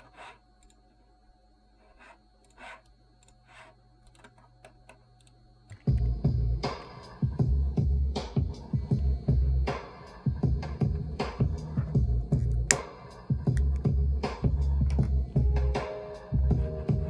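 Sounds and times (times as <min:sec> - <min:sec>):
sample-based beat with deep bass: 0:05.7 - 0:17.0.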